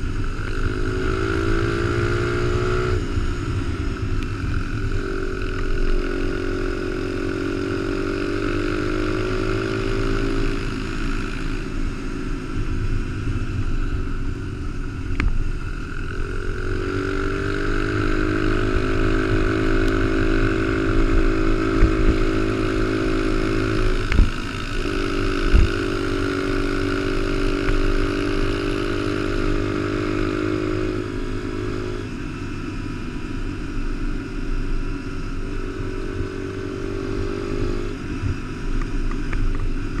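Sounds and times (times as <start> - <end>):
small motorcycle engine revving: 0.0 - 40.0
wind rumble on microphone: 18.7 - 29.1, 36.7 - 40.0.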